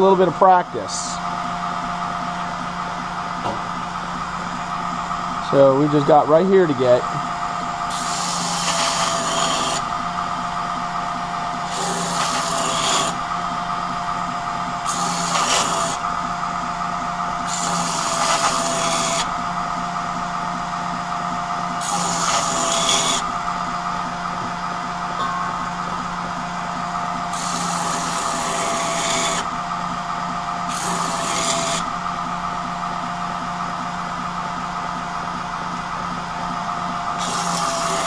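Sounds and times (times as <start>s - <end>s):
belt grinder humming: 0.0s - 33.4s, 36.0s - 38.0s
blade grinding on abrasive belt: 5.4s - 20.5s, 21.1s - 24.5s, 25.8s - 32.5s, 37.0s - 38.0s.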